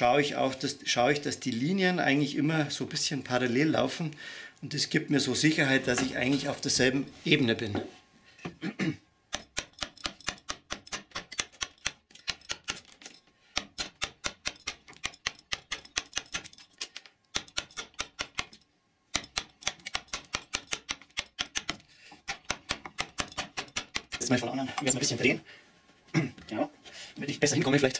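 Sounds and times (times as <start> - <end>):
wooden mallet tapping a gouge: 9.3 - 12.9, 13.6 - 16.6, 17.3 - 24.2.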